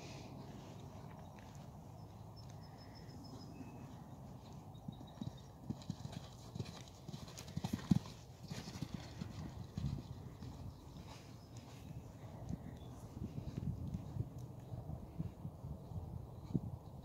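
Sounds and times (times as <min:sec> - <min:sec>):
horse hoofbeats on sand: 0:03.5 - 0:14.6.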